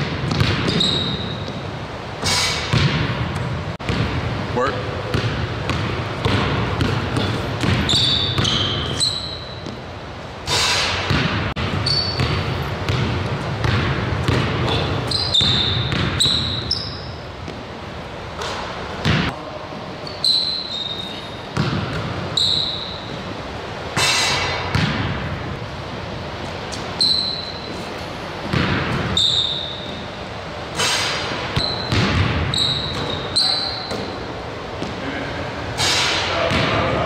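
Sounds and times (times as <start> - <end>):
basketball dribbling on wooden floor: 0.0 - 1.6, 5.1 - 8.6, 11.1 - 16.6
sneakers squeaking on court: 0.0 - 4.2, 5.1 - 23.4, 26.5 - 35.0.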